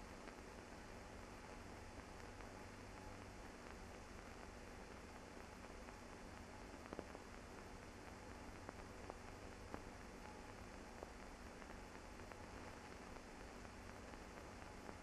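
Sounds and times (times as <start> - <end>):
film transfer hiss: 0.0 - 15.0.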